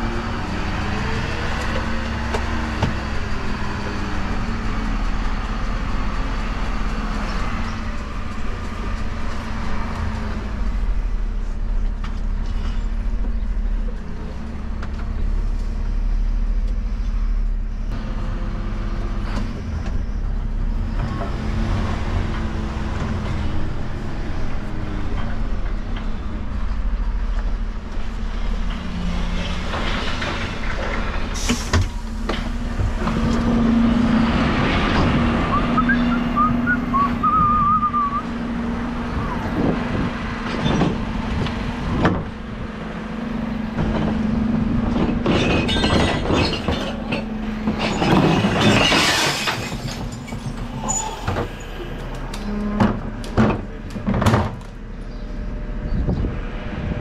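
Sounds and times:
diesel truck engine running: 0.0s - 48.5s
high squeal: 50.3s - 52.8s.

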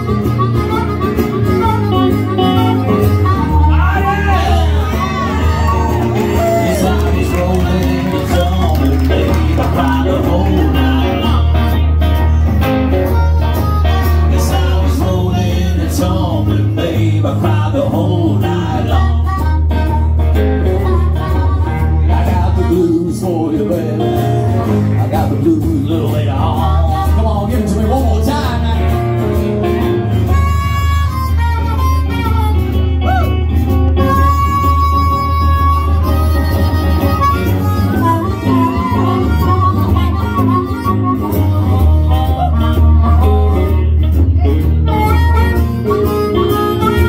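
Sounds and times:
amplified harmonica: 0.0s - 24.7s, 26.4s - 47.0s
acoustic guitar: 0.0s - 47.0s
electric guitar: 0.0s - 47.0s.

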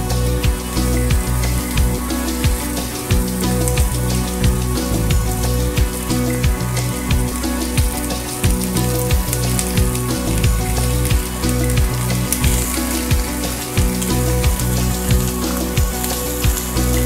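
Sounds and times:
background music with beat: 0.0s - 17.0s
steaks sizzling: 0.0s - 17.0s.

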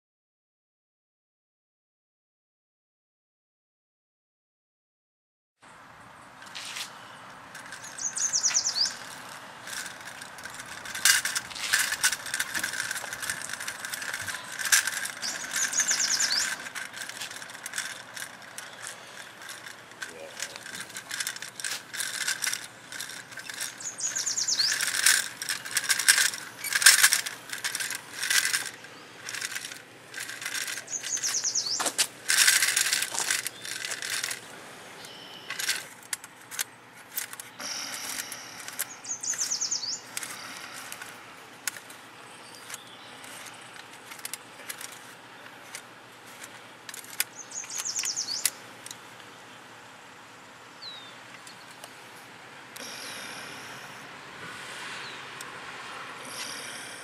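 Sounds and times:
wooden toy rattling on concrete: 7.5s - 49.0s.

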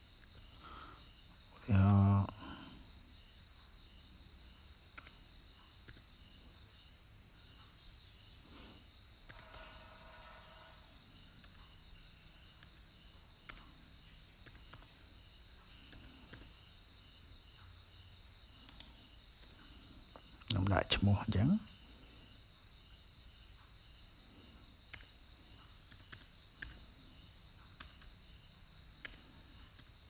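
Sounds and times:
insects chirping: 0.0s - 30.0s
sharp clicks: 4.9s - 5.2s, 5.8s - 6.1s, 9.2s - 9.7s, 12.5s - 13.8s, 14.4s - 15.0s, 15.8s - 16.6s, 18.6s - 19.6s, 24.9s - 25.2s, 25.8s - 26.9s, 27.8s - 28.2s, 29.0s - 30.0s
continuous high trill: 7.4s - 16.6s.

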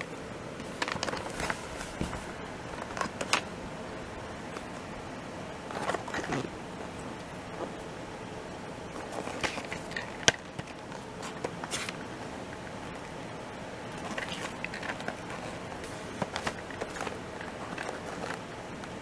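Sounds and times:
cardboard box rustling and scraping: 0.6s - 2.4s.

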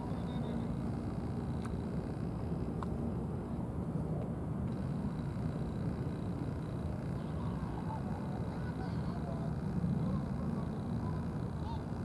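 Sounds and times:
faint ticks: 1.1s - 2.2s.

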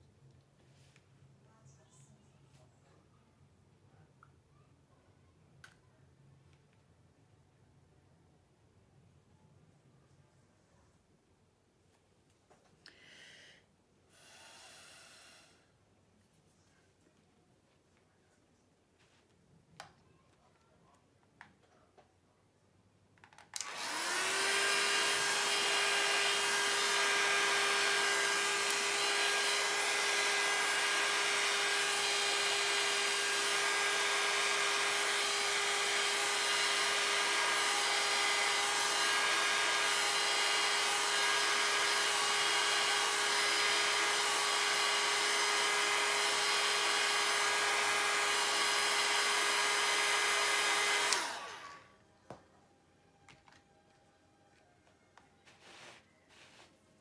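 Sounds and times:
hair dryer humming: 14.2s - 15.6s, 23.6s - 51.9s.

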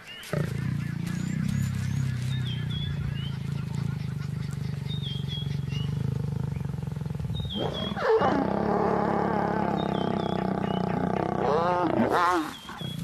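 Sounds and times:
lions growling: 0.2s - 13.0s.

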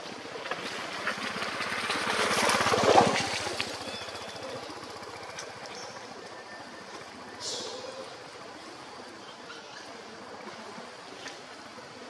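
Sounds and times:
small motor engine passing by: 0.2s - 8.7s.

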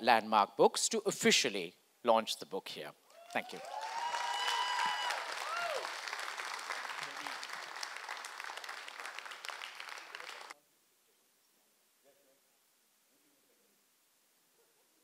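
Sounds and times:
audience applauding: 3.3s - 10.6s.

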